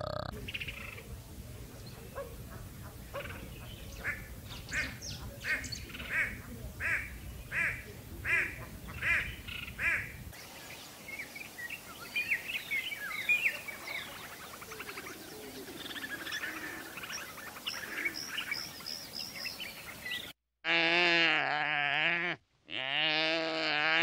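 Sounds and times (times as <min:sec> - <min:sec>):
small birds chirping: 0:00.0 - 0:20.4
hornbill honking calls: 0:01.8 - 0:10.2.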